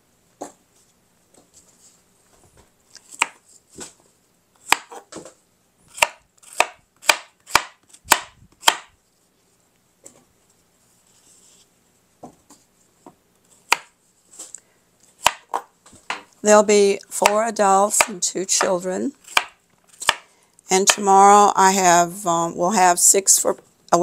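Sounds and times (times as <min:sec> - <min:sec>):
knife chopping on cutting board: 0:03.1 - 0:03.4, 0:04.6 - 0:05.2, 0:05.9 - 0:09.0, 0:13.7 - 0:14.0, 0:15.2 - 0:16.2, 0:17.2 - 0:20.3.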